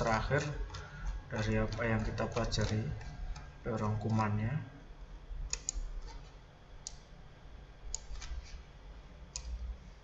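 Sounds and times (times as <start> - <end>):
computer mouse clicking: 0.4 - 4.3, 5.5 - 7.1, 7.9 - 8.6, 9.3 - 9.6.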